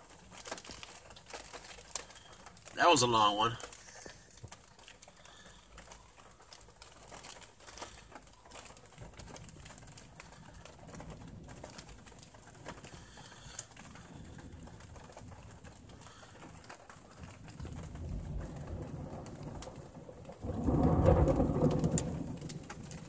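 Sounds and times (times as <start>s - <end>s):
distant thunder rumble: 17.6s - 23.0s.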